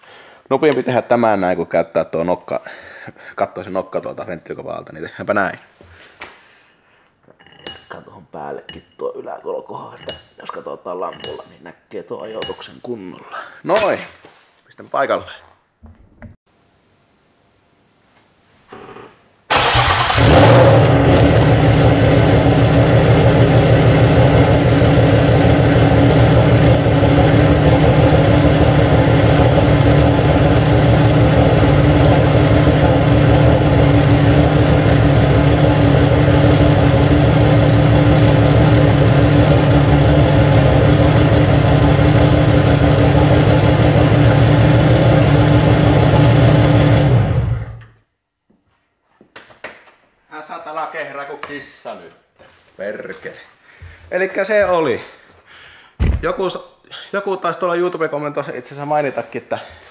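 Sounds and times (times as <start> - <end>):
car engine cranking and running: 19.5 - 47.9.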